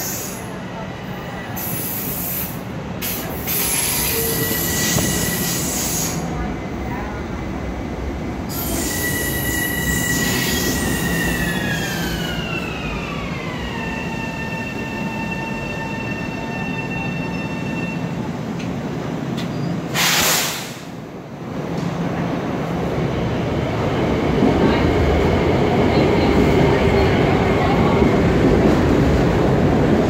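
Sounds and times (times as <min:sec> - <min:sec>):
loud air hiss: 0:01.6 - 0:06.3, 0:19.9 - 0:21.0.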